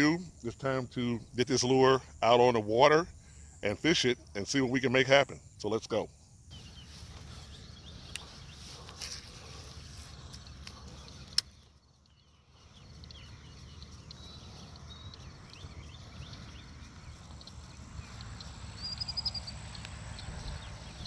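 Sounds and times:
birds chirping: 0.0s - 21.0s
bird trill: 18.8s - 21.0s.

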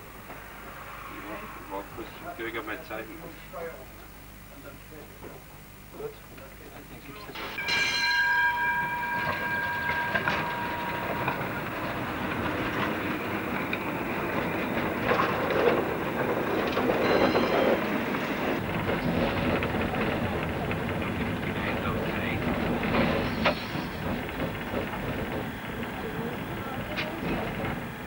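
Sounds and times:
tram wheels rumbling and rattling: 0.0s - 3.6s, 6.2s - 28.0s
high ringing tone: 7.4s - 13.7s, 16.8s - 18.4s.

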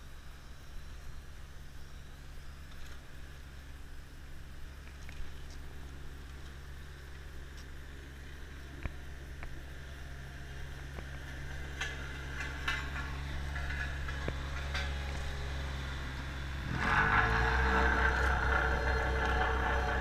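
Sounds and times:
truck engine running: 3.2s - 20.0s
rushing mechanical noise: 3.8s - 20.0s
rakes scraping asphalt: 11.0s - 20.0s.

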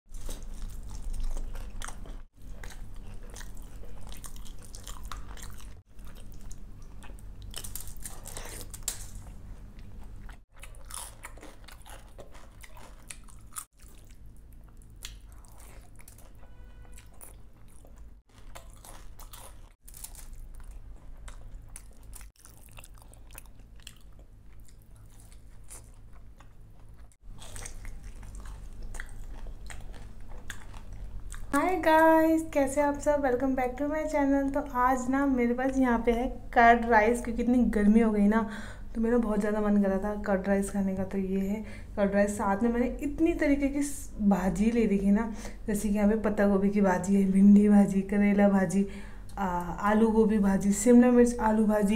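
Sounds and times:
wet chewing: 0.1s - 31.6s
low steady hum: 0.1s - 51.9s
crunchy bites into fried food: 18.3s - 26.3s.

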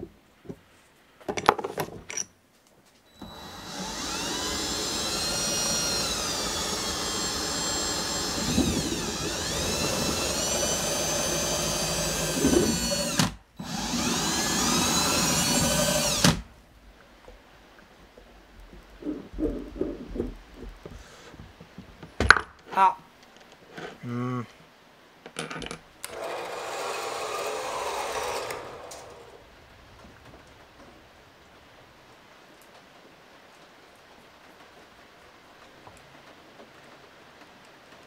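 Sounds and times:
drill whining boring into metal: 3.2s - 16.4s, 26.1s - 29.4s.

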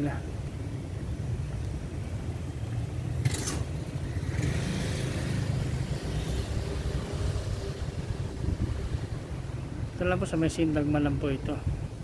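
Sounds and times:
motor vehicle passing: 1.8s - 10.0s.

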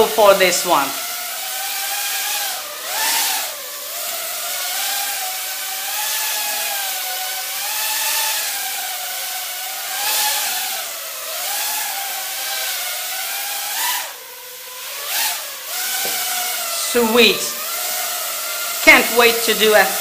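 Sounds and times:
quadcopter motors buzzing: 0.0s - 20.0s.

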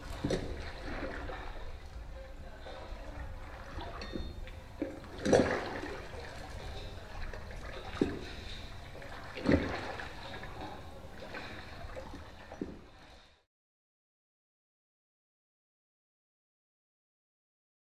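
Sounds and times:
water lapping against boat: 0.0s - 13.4s
water slapping boat: 0.0s - 13.4s.

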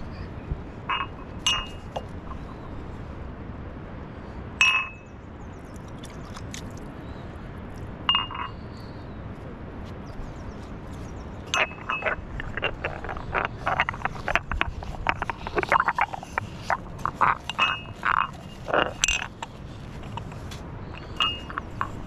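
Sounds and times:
glass mugs clinking: 0.9s - 2.1s, 4.6s - 5.0s, 8.1s - 8.6s, 11.5s - 12.2s, 17.4s - 18.3s, 21.0s - 22.0s
glasses knocking and rattling: 0.9s - 2.1s, 8.1s - 8.6s, 11.5s - 20.4s, 21.0s - 22.0s.

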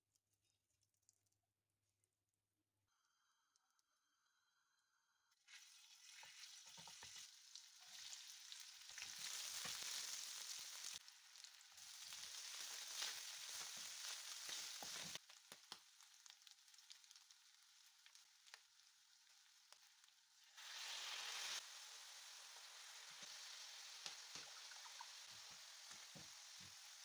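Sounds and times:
food sizzling in oil: 5.4s - 27.0s.

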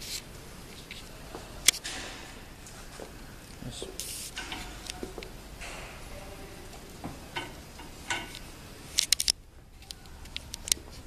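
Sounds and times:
heat press clicks and knocks: 7.0s - 8.5s.

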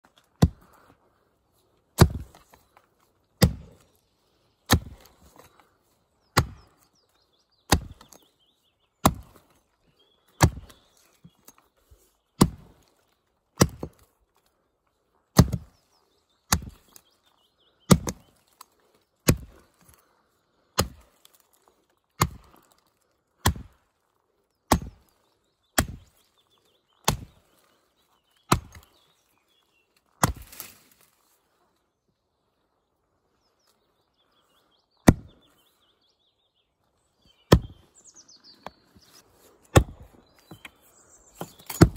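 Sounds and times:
axe chopping wood: 0.3s - 0.7s, 2.0s - 2.6s, 3.4s - 3.8s, 4.7s - 5.5s, 6.3s - 6.8s, 7.7s - 8.2s, 9.0s - 9.5s, 10.4s - 10.8s, 12.4s - 12.8s, 13.6s - 14.0s, 15.3s - 15.7s, 16.5s - 17.0s, 17.9s - 18.2s, 19.2s - 19.6s, 20.8s - 21.4s, 22.2s - 22.8s, 23.4s - 23.8s, 24.7s - 25.1s, 25.8s - 26.1s, 27.0s - 27.4s, 28.5s - 28.9s, 30.2s - 30.8s, 35.0s - 35.4s, 37.5s - 37.8s, 39.6s - 41.9s.

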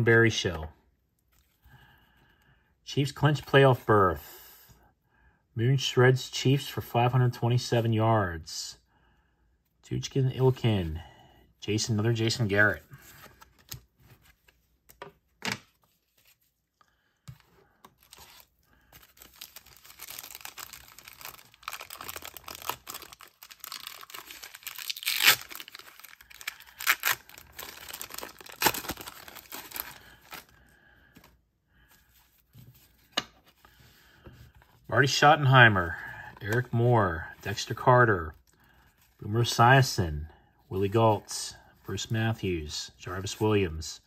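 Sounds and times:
wrapper tearing and crinkling: 18.0s - 30.5s.

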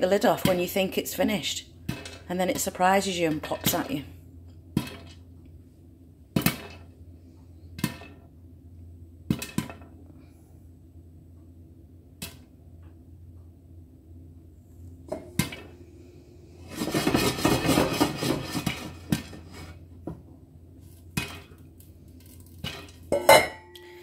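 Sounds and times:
popcorn popping: 0.0s - 5.4s, 6.3s - 7.0s, 7.7s - 8.4s, 9.2s - 10.0s, 12.1s - 12.9s, 15.1s - 15.7s, 16.6s - 24.0s
popcorn rattling in shaken pan: 16.7s - 19.5s.

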